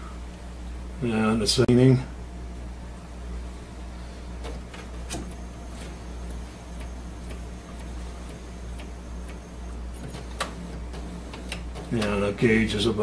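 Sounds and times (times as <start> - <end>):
low printer hum: 0.0 - 13.0
printer mechanical clicks: 4.4 - 12.3.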